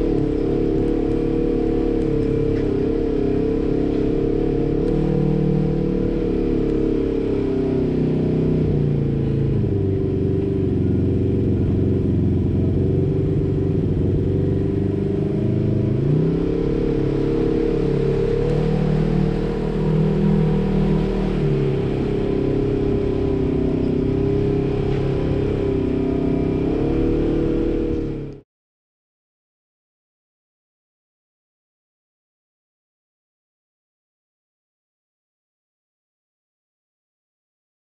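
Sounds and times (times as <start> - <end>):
off-road vehicle engine revving: 0.0 - 28.4.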